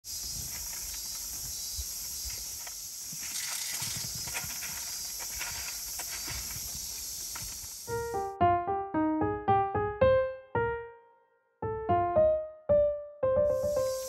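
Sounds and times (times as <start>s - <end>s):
high-pitched insect drone: 0.1s - 8.0s, 13.4s - 14.0s.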